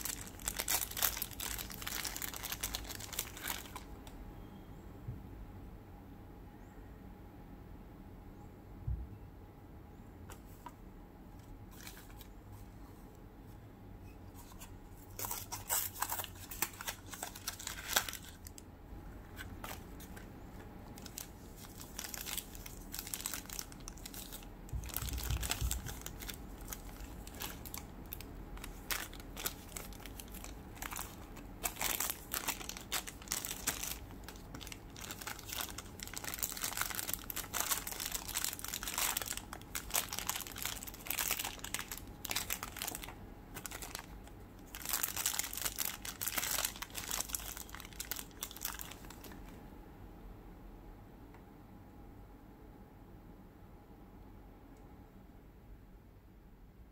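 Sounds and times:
plastic bag crinkling and tearing: 0.0s - 3.9s, 14.4s - 18.6s, 20.9s - 49.5s.

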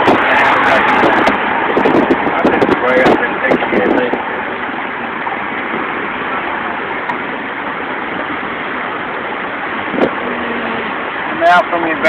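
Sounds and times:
car driving heard from inside: 0.0s - 12.0s.

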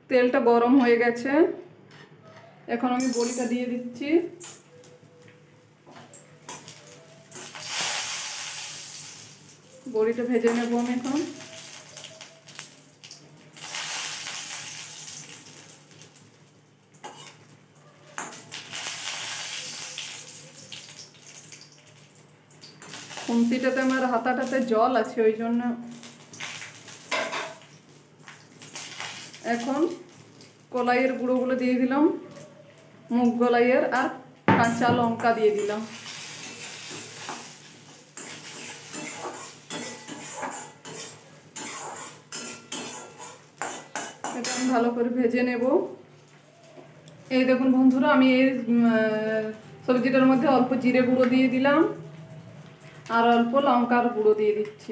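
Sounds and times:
lentil nuggets sizzling in oil: 3.0s - 32.2s, 33.1s - 54.9s
spatula scraping a wok: 17.0s - 17.4s, 35.6s - 44.8s.

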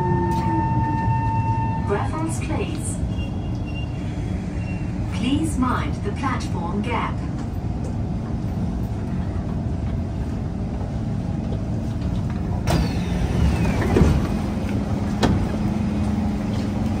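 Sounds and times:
standing train hum: 0.0s - 17.0s
train doors clunk: 11.5s - 16.7s.

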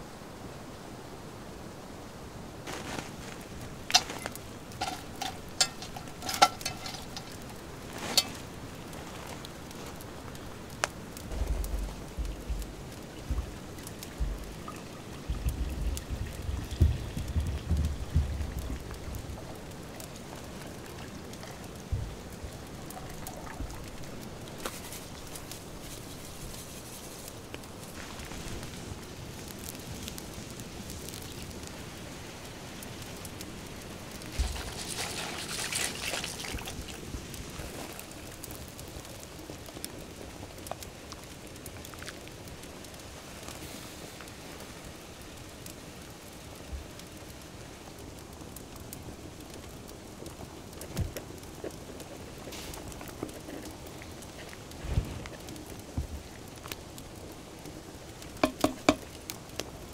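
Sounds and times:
light crackles: 0.0s - 59.9s
water boiling hard: 2.7s - 29.6s, 34.0s - 39.4s, 50.6s - 59.5s
water pouring into pot: 4.8s - 7.5s, 34.3s - 37.1s.

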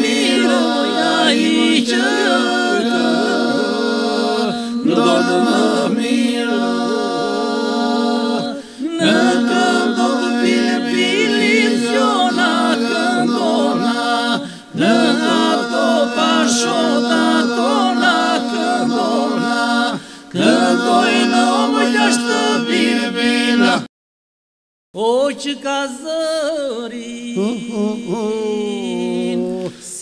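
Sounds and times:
men singing a drone: 0.0s - 23.9s
ornamented lead voices singing: 0.0s - 23.9s, 27.0s - 30.0s.

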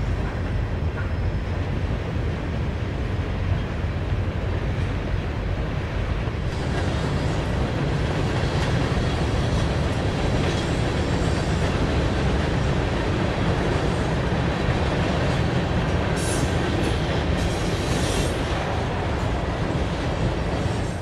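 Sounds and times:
freight train wheels rumbling on rails: 0.0s - 21.0s.

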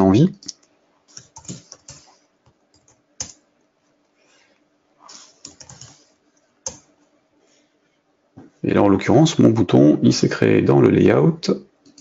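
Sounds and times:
computer keyboard typing: 0.4s - 3.4s, 5.1s - 6.9s.

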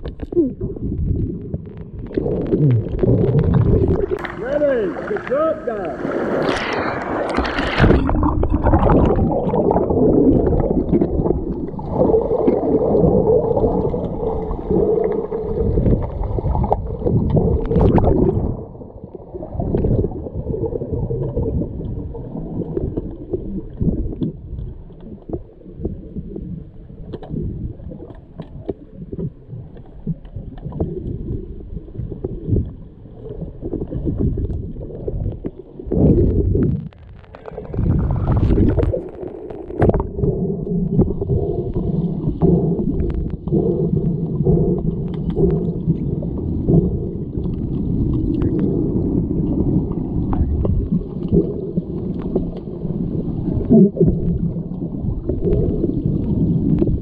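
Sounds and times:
muffled churning pool water: 0.0s - 57.0s
short knocks underwater: 6.2s - 11.6s, 39.7s - 40.3s.

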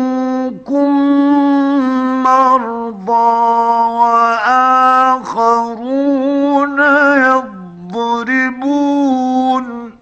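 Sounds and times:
man reciting melodically: 0.0s - 10.0s.

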